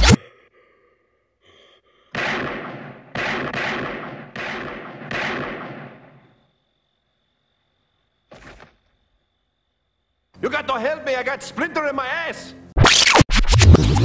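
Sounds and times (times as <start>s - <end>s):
handgun shots echoing: 2.2s - 6.2s.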